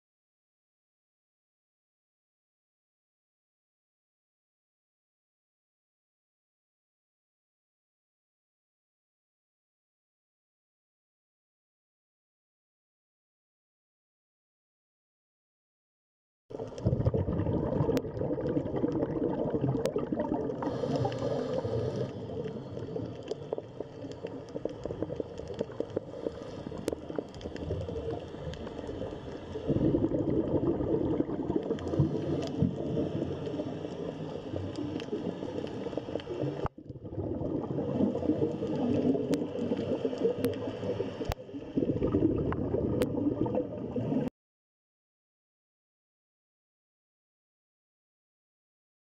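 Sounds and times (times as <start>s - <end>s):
muffled underwater rushing: 16.6s - 44.3s.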